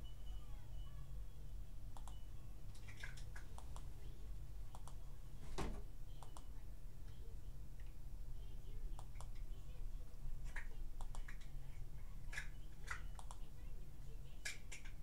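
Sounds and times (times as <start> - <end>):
steady low hum: 0.0 - 15.0
mouse and keyboard clicks: 2.0 - 2.2, 2.8 - 3.9, 9.0 - 9.4, 10.5 - 11.6, 12.3 - 13.5.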